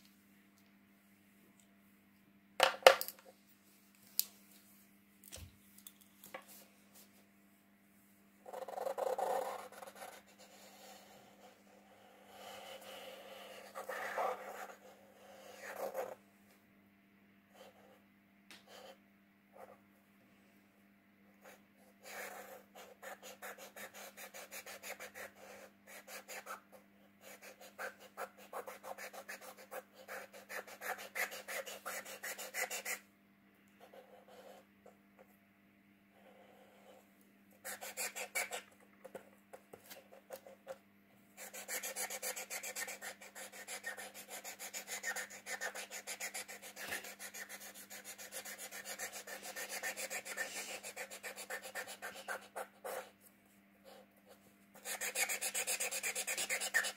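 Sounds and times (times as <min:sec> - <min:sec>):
marker scratching on paper: 0:08.5 - 0:11.5, 0:12.3 - 0:16.2, 0:21.4 - 0:26.6, 0:27.2 - 0:33.0, 0:37.6 - 0:39.2, 0:41.4 - 0:53.1, 0:53.9 - 0:56.9.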